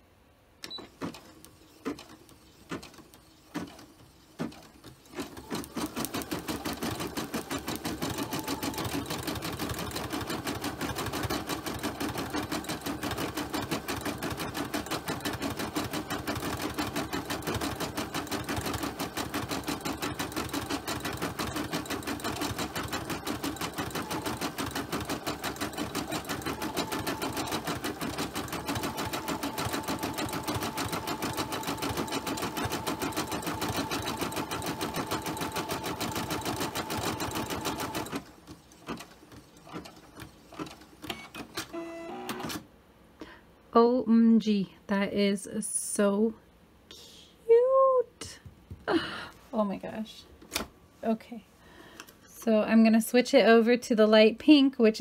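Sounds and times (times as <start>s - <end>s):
embroidery machine stitching: 0.6s - 42.6s.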